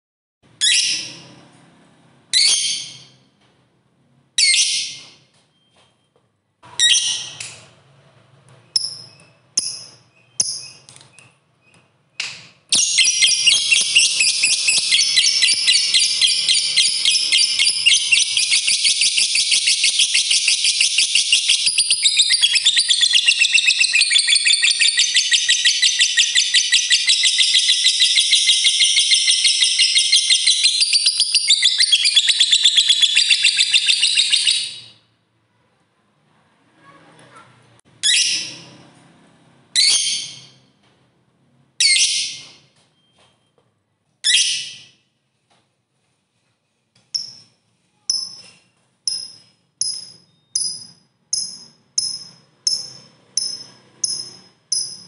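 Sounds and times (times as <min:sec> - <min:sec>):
lovebird chirping and trilling: 0:00.6 - 0:01.3, 0:02.3 - 0:03.3, 0:04.4 - 0:05.7, 0:06.8 - 0:07.6, 0:08.7 - 0:35.0, 0:38.0 - 0:38.8, 0:39.8 - 0:40.7, 0:41.8 - 0:43.1, 0:44.2 - 0:45.0, 0:47.2 - 0:55.0.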